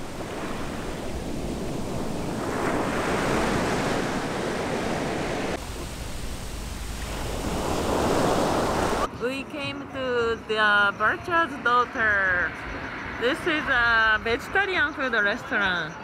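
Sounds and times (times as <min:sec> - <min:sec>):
surf washing onto beach: 0:00.0 - 0:09.1
wind rumbling on microphone: 0:00.0 - 0:09.1.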